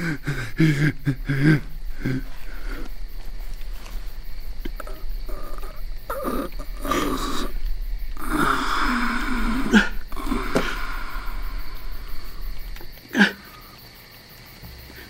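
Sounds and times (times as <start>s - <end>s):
man sobbing: 0.0s - 3.0s
sharp catch of breath: 8.8s - 13.8s.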